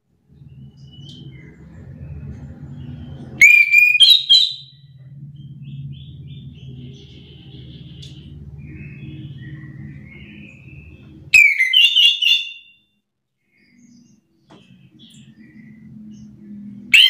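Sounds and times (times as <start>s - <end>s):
bird calling with ringing notes: 3.4s - 13.0s, 14.8s - 17.0s.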